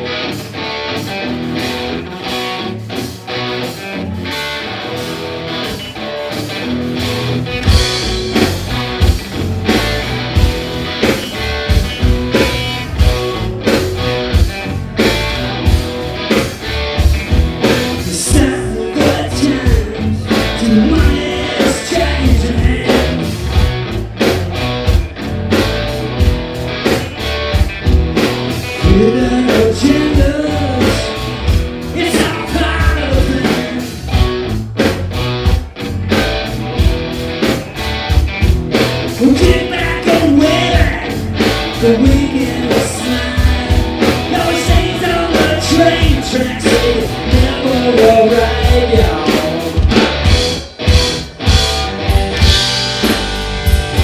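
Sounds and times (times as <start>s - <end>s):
live rock band: 0.0s - 54.0s
man singing: 17.8s - 23.3s, 28.8s - 34.0s, 39.2s - 50.0s.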